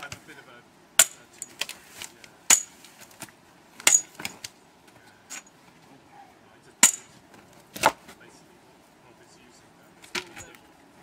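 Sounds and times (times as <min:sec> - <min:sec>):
metal bar clanking on log: 0:03.8 - 0:04.4, 0:06.8 - 0:07.2.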